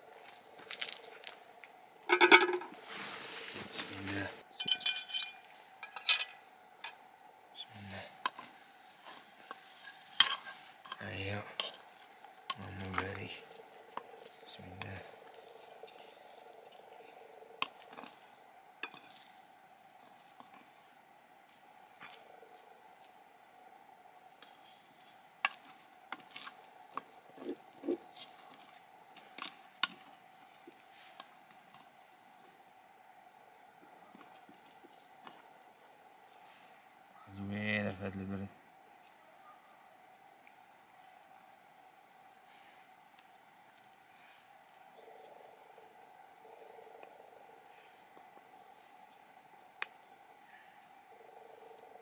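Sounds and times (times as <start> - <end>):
faint steady hum: 0.0 - 52.0
wooden spoon knocking on metal pot: 2.1 - 2.7
wooden spoon scraping porridge in pot: 8.2 - 21.0.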